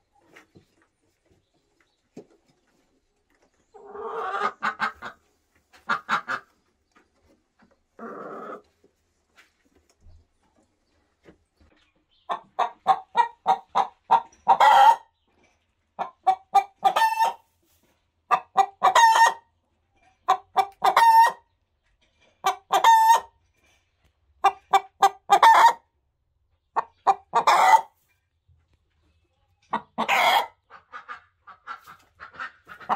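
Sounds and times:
hen cackling: 0:03.8 - 0:06.5, 0:26.8 - 0:27.9, 0:29.7 - 0:32.9.

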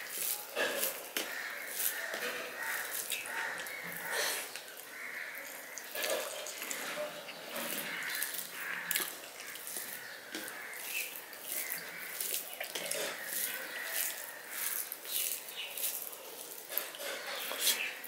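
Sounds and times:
chewing: 0:00.0 - 0:18.0
fingers squishing rice: 0:00.0 - 0:18.0.

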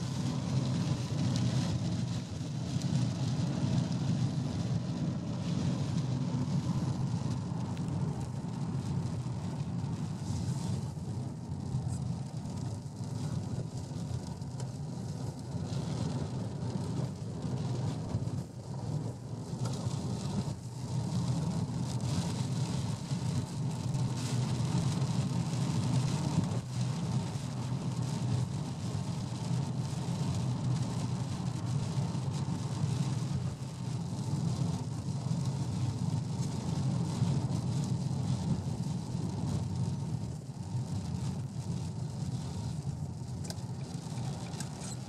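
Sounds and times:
road hiss: 0:00.0 - 0:27.2
car engine and tyre rumble: 0:00.0 - 0:45.0.

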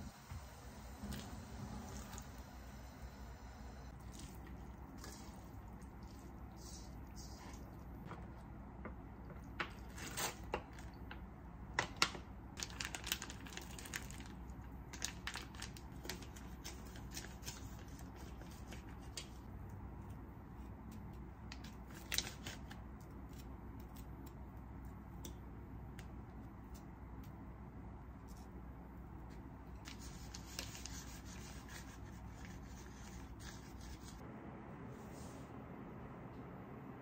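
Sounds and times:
low steady hum: 0:00.0 - 0:37.0
plastic pouches crinkling: 0:11.9 - 0:17.5.

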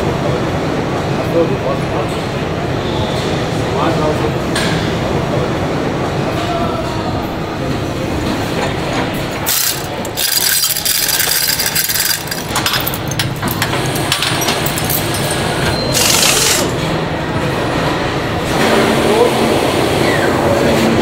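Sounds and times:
low factory hum: 0:00.0 - 0:21.0.

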